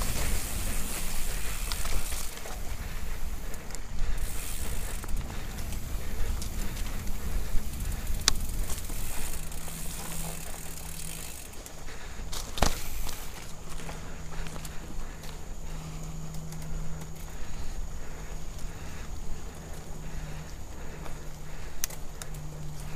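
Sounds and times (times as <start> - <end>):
bike knocking on bumps: 0.0 - 17.7
bike tyres rumbling over dirt: 0.0 - 22.9.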